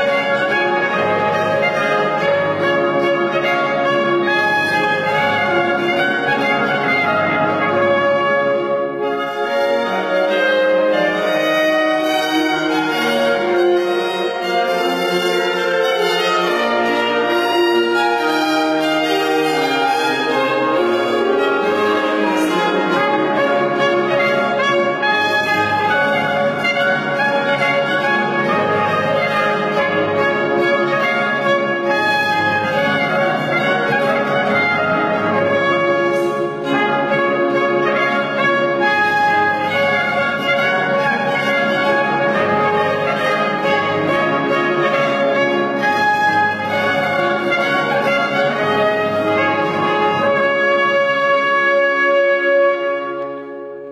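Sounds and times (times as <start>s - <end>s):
brass and strings ensemble: 0.0s - 53.9s.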